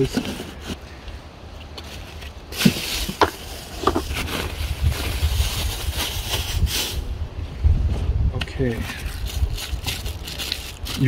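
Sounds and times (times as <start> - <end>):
plastic packaging rustling: 1.8 - 7.0, 8.8 - 11.0
wind rumble on microphone: 3.0 - 11.0.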